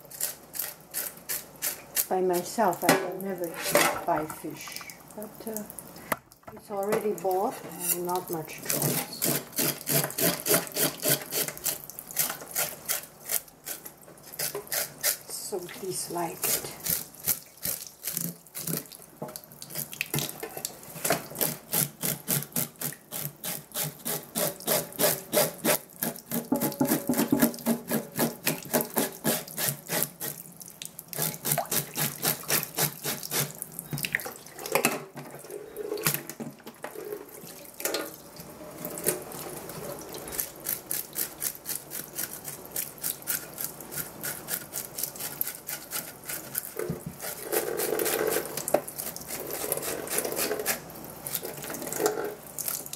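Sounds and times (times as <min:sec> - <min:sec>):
fish being scraped by hand: 0:00.0 - 0:02.5, 0:07.6 - 0:15.3, 0:16.2 - 0:18.9, 0:21.3 - 0:30.4, 0:31.2 - 0:33.6, 0:40.3 - 0:52.0
tap water running into sink: 0:26.3 - 0:29.1.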